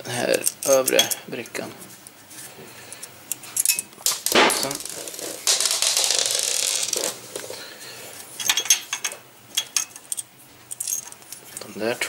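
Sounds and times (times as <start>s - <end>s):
small metal parts clinking: 0.2s - 1.4s, 3.0s - 7.2s, 8.4s - 11.2s.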